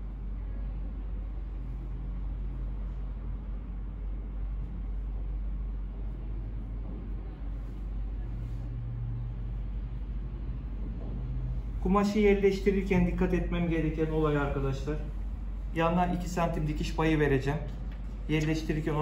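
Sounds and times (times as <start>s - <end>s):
low background rumble and hum: 0.0s - 19.0s.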